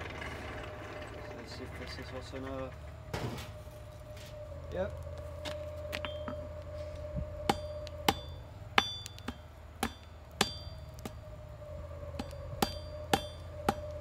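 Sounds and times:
hammer striking steel on anvil: 0:07.5 - 0:11.2, 0:12.2 - 0:13.9.

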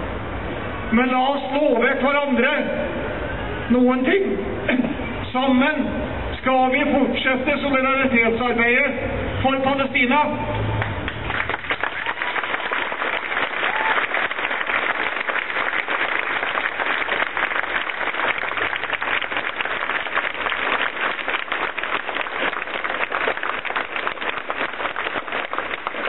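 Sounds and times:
large crowd applauding: 0:10.8 - 0:26.0.

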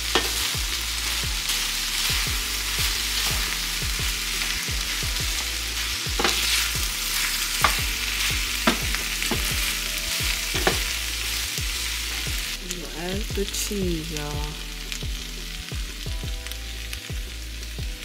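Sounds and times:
potatoes sizzling in a skillet: 0:00.0 - 0:18.0
wooden spoon scraping and knocking pan: 0:00.1 - 0:12.6.

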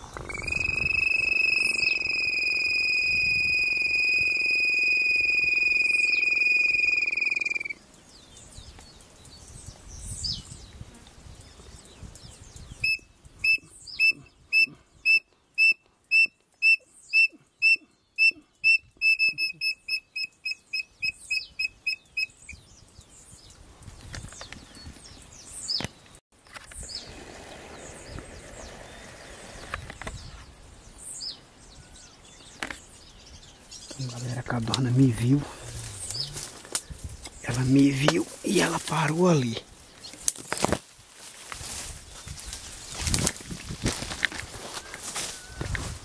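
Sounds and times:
bird call of whistled notes: 0:00.0 - 0:07.8
long clear whistle: 0:00.3 - 0:07.8.

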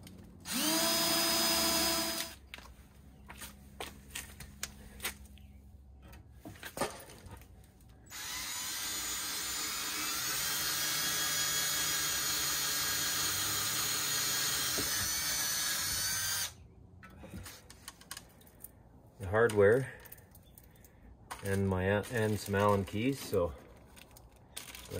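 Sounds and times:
cordless drill boring metal: 0:00.5 - 0:02.4, 0:08.1 - 0:16.5.

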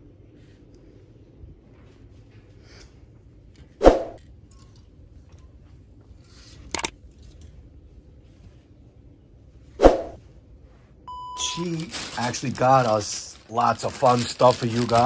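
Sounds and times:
faint low hum: 0:00.0 - 0:15.0
plastic hangers clacking: 0:11.4 - 0:15.0.

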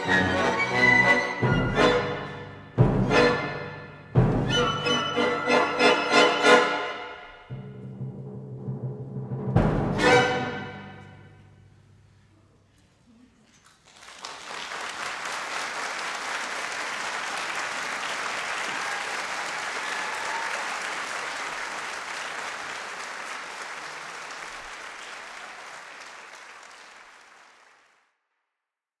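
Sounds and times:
audience applauding: 0:13.6 - 0:28.1.

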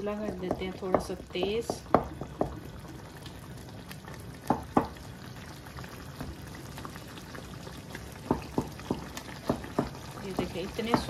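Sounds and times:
food simmering and bubbling: 0:00.0 - 0:11.0
spatula knocking against pan: 0:08.2 - 0:11.0.

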